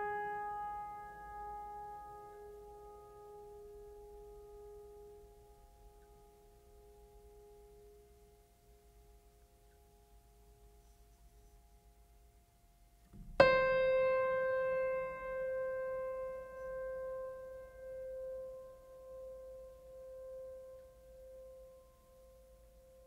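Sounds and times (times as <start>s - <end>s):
piano music: 13.3s - 21.8s.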